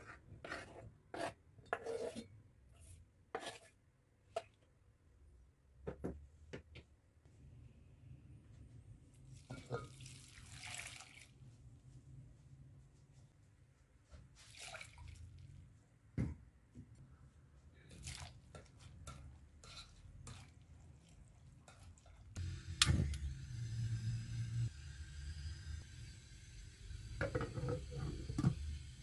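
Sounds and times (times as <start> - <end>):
whisk stirring cabbage in water: 17.9 - 22.4.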